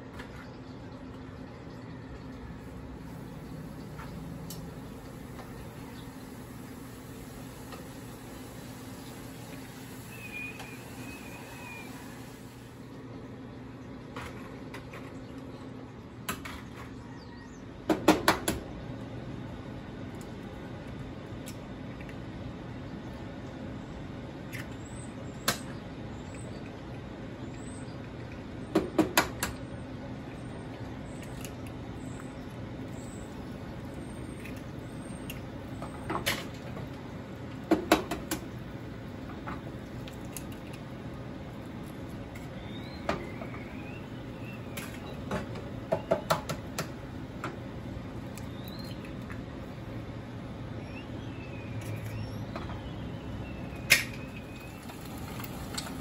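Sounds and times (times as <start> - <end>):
egg sizzling in oil: 2.7 - 12.8, 53.9 - 56.0
egg cracking clicks and taps: 36.8 - 38.6, 45.5 - 47.6, 48.3 - 49.4.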